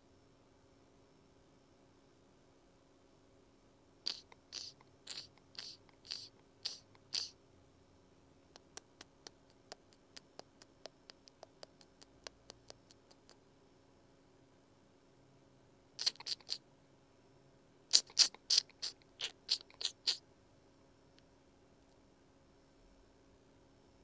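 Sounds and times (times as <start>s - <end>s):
cartoon scratchy rasps: 4.1s - 7.4s, 8.6s - 13.4s, 16.0s - 16.6s, 17.9s - 20.2s
light quiet clicks: 8.6s - 13.4s.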